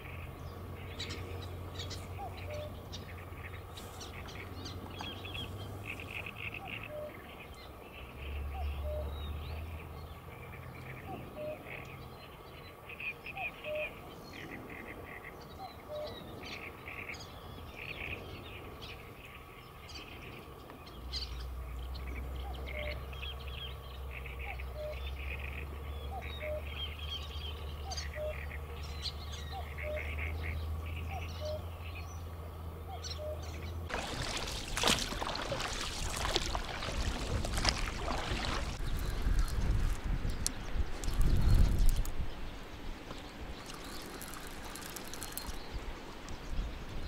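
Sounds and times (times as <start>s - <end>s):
small birds chirping: 0.0s - 47.0s
wind buffeting microphone: 33.9s - 47.0s.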